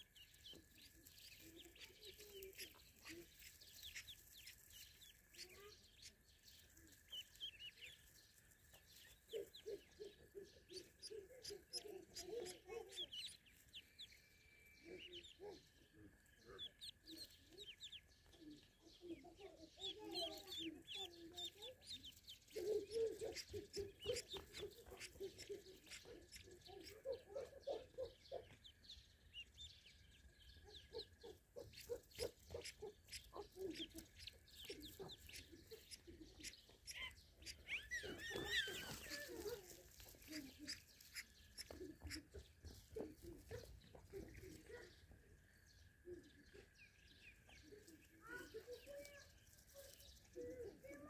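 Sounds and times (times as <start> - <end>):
ducklings peeping: 0.0 - 51.0
lower clucking calls: 19.9 - 28.7, 30.7 - 44.6.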